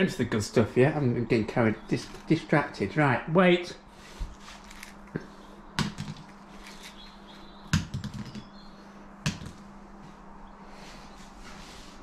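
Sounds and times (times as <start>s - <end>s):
nuggets tapping on wooden floor: 5.8s - 6.9s, 7.7s - 8.5s.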